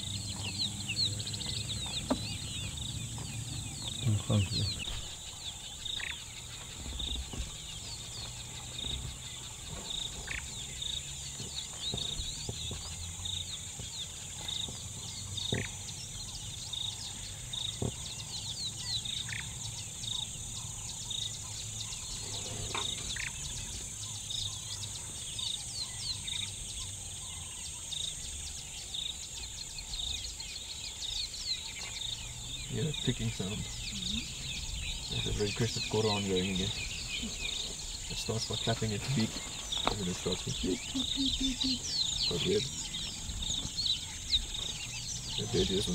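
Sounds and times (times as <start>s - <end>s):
bird beeping: 31.6s - 45.9s.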